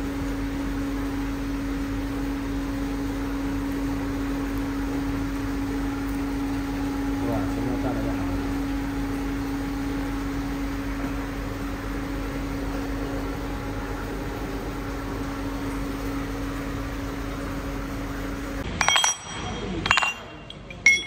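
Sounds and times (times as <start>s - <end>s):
fan noise: 0.0s - 21.0s
furnace electrical hum: 0.0s - 21.0s
metal bars clinking: 18.7s - 21.0s.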